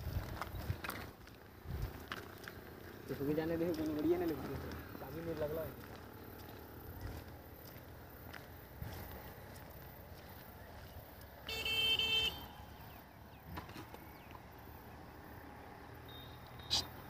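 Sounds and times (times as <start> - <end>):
vehicle horn honk: 11.4 - 12.7.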